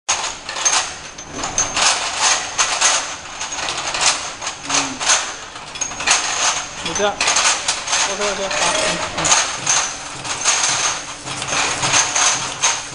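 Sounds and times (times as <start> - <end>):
vials rattling on conveyor: 0.1 - 12.9
thin high machine whine: 8.0 - 12.2.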